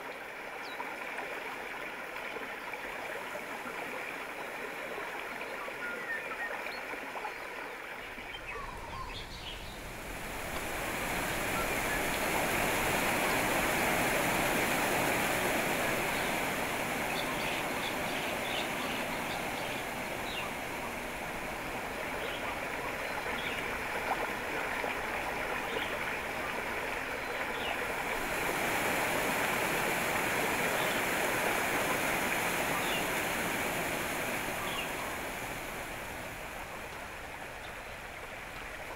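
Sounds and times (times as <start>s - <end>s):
running water rushing: 0.0s - 38.9s.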